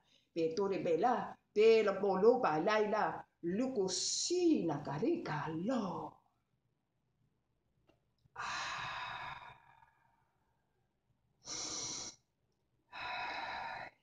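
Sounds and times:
woman breathing deeply: 8.4 - 10.0, 11.5 - 12.1, 12.9 - 14.0.

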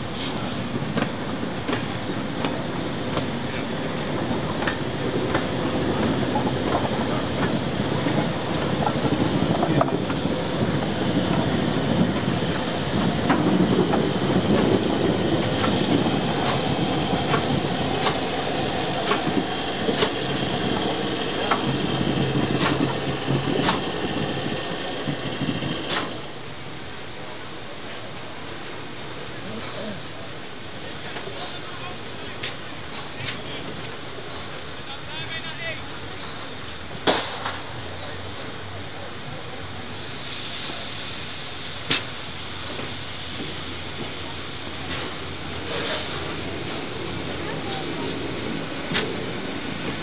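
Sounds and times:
wheels squealing on rails: 1.8 - 26.5, 39.4 - 50.0
wheels clicking over rail joints: 4.4 - 26.1.

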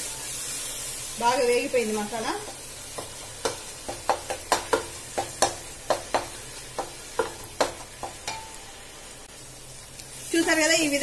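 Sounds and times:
low sizzle: 0.0 - 11.0.

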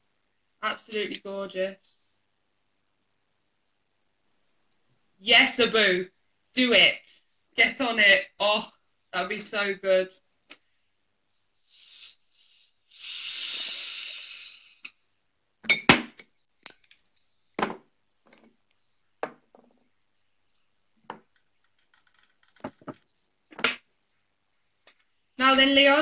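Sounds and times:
hiss: 11.7 - 14.8.

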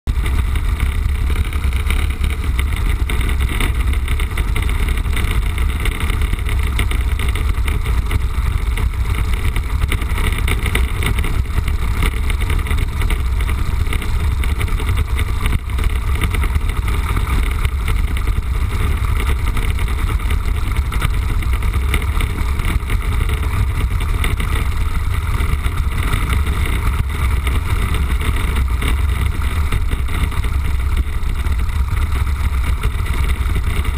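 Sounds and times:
light aircraft engine and propeller: 0.1 - 33.9.

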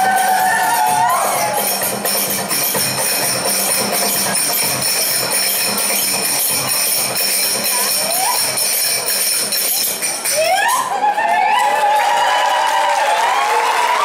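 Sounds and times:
dance music with drum beat: 0.0 - 10.4
finger cymbals ringing: 0.0 - 10.6.

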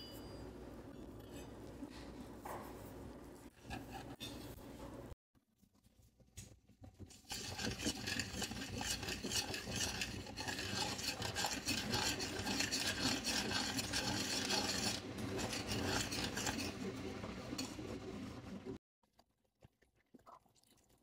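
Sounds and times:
spoon scraping a saucepan: 3.6 - 4.6, 7.1 - 17.9.

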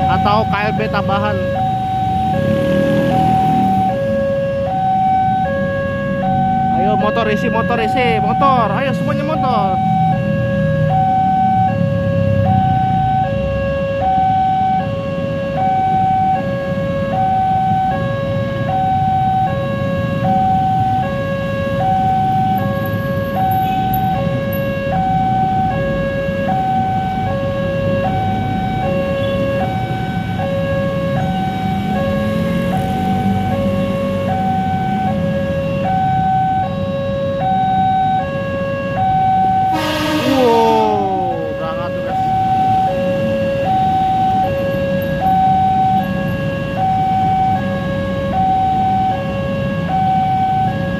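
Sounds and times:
two-tone crossing alarm: 0.0 - 50.9
idling motorcycles and cars: 15.6 - 36.7
horn blast falling in pitch: 39.7 - 42.4.

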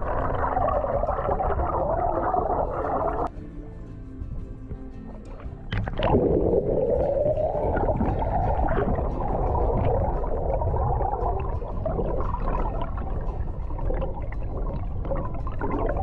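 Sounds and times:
underwater rushing and bubbling: 0.0 - 3.3, 5.1 - 16.0.

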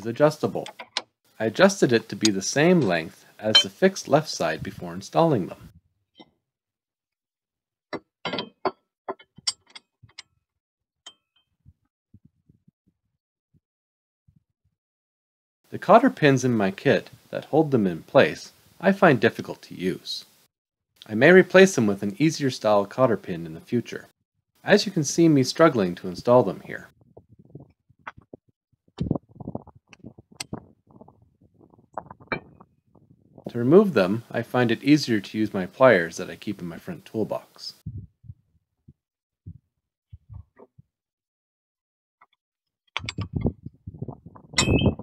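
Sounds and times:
faint metal clicks and taps: 0.6 - 1.1, 8.3 - 10.3
metal links clanking: 8.3 - 9.9.

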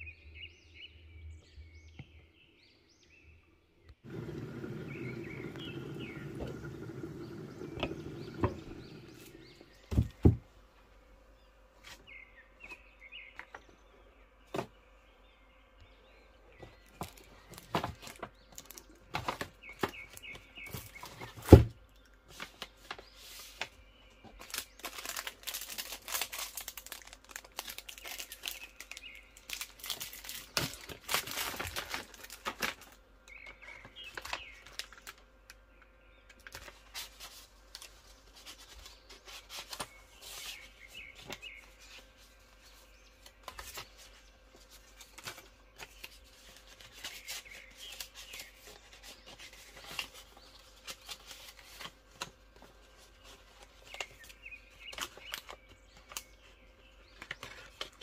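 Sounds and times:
bird chirping: 0.0 - 10.4, 11.4 - 17.5, 39.9 - 42.0
paper rustling and crinkling: 16.6 - 35.3, 36.4 - 58.0.

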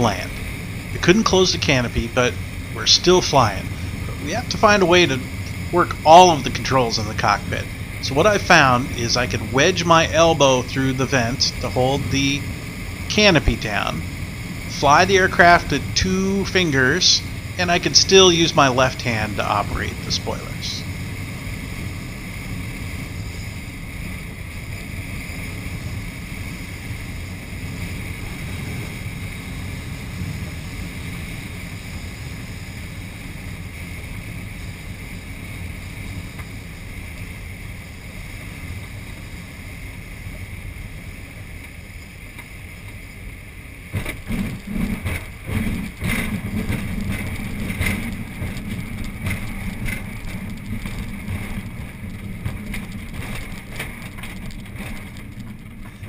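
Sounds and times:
airflow rushing through cockpit: 0.0 - 56.0
glider bumping and rattling on ground: 43.9 - 56.0.

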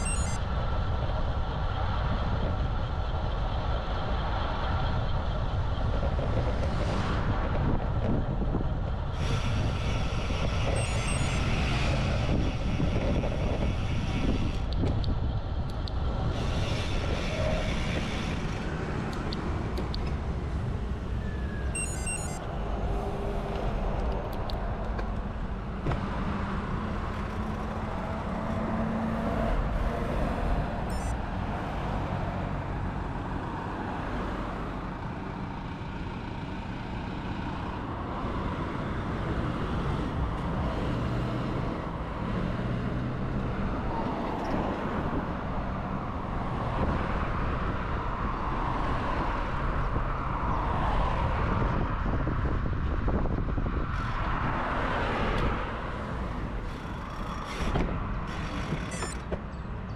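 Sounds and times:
short beeps: 0.0 - 0.4, 10.7 - 11.5, 21.8 - 22.5, 30.9 - 31.2, 58.9 - 59.2
road and wind noise: 0.0 - 59.9
vehicles passing: 0.0 - 59.9.

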